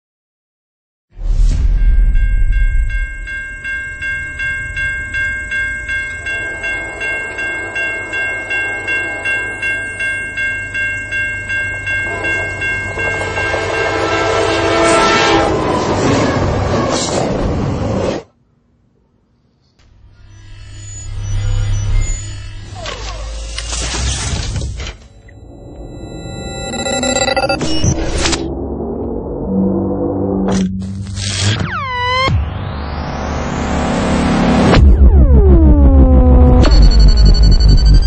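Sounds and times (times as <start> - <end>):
train horn: 6.4 - 9.7, 12.0 - 16.9.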